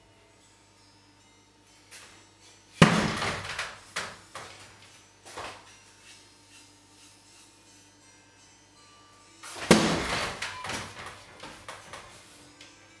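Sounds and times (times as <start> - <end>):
loud knock: 2.8 - 4.1.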